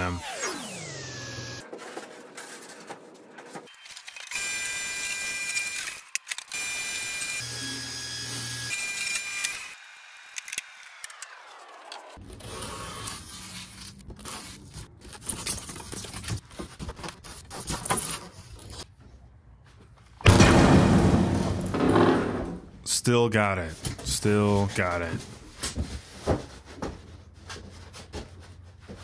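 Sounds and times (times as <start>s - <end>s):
saw blade winding down whine: 0.0s - 1.6s, 4.3s - 13.4s
table saw cutting foam board: 0.0s - 1.8s, 4.3s - 14.7s.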